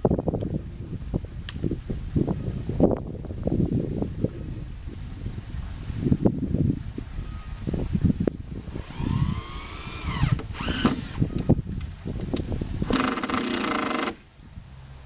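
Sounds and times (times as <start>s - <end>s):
cordless drill driving screws: 8.7s - 11.4s, 12.8s - 14.2s.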